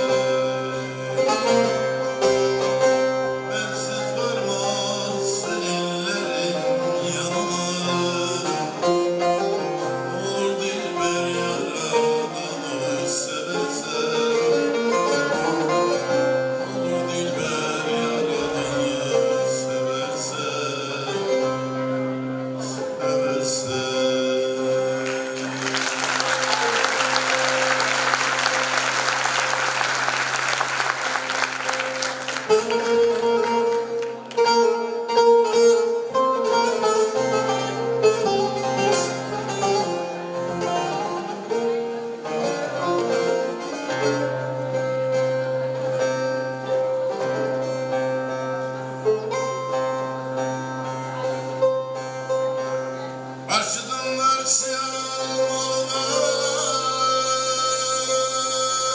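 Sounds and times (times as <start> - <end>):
plucked lute melody over drone: 0.0 - 58.9
audience applause: 25.0 - 34.4.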